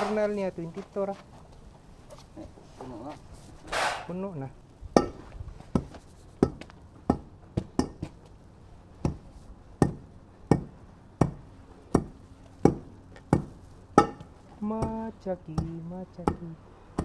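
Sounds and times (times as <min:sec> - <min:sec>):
hand tamper pounding asphalt: 0:05.0 - 0:08.2, 0:09.0 - 0:17.0.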